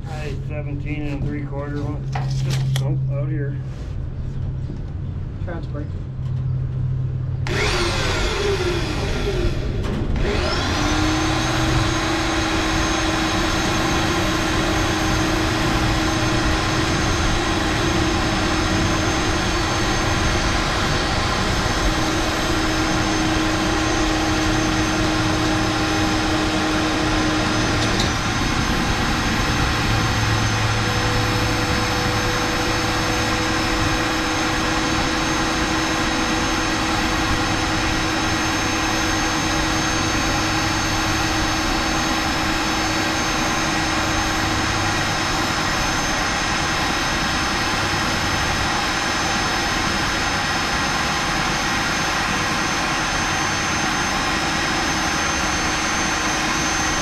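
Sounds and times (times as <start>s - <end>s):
drill click: 7.4s - 17.6s
drill boring into steel: 7.4s - 57.0s.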